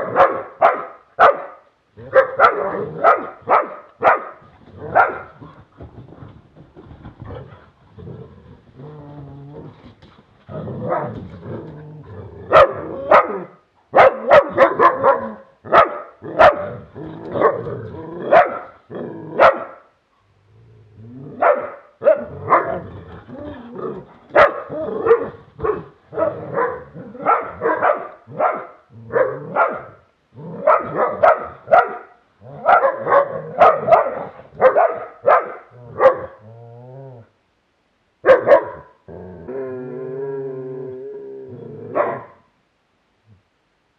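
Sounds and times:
dogs barking in play: 0.0s - 5.5s, 12.4s - 19.8s, 21.4s - 36.4s, 38.2s - 39.0s, 41.9s - 42.4s.

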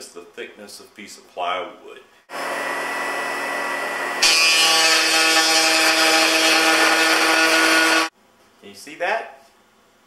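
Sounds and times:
router cutting wood: 2.3s - 8.1s.

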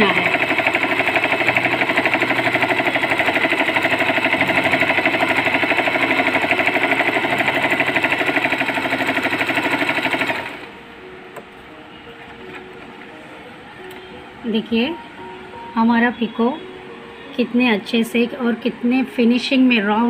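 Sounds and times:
sewing machine stitching: 0.0s - 10.7s.

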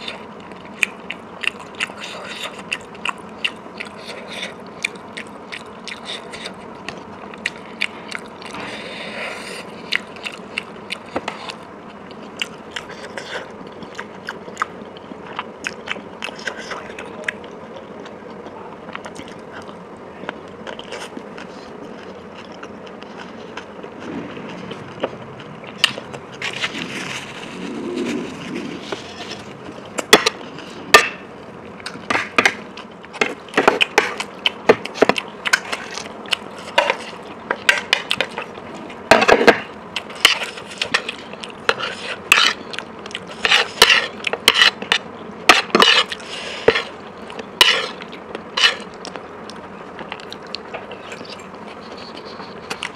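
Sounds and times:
chewing and crunching food: 0.0s - 52.9s
cutlery scraping a plate: 36.6s - 38.5s, 39.1s - 41.1s, 41.7s - 42.6s, 43.3s - 46.9s, 47.6s - 48.0s, 48.6s - 48.9s.

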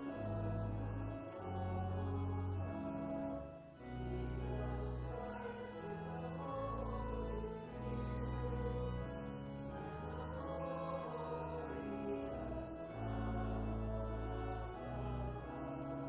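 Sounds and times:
church organ playing a hymn: 0.0s - 16.0s.

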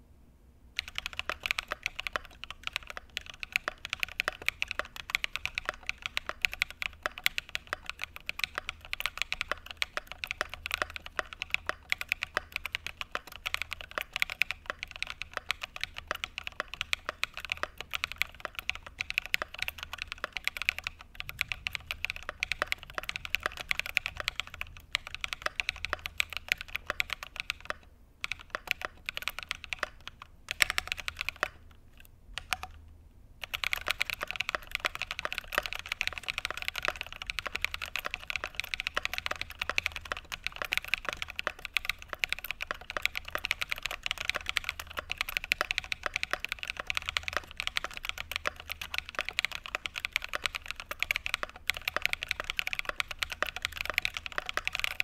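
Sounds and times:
mechanical keyboard typing: 0.8s - 32.8s, 33.4s - 55.0s.

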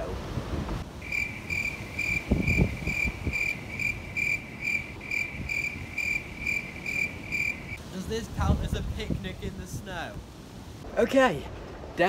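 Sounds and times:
cricket chirping: 1.0s - 7.8s.

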